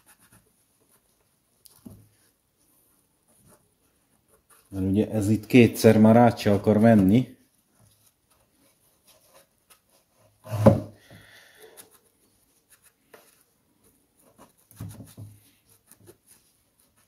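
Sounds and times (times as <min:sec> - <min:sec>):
knock: 0:10.5 - 0:10.9.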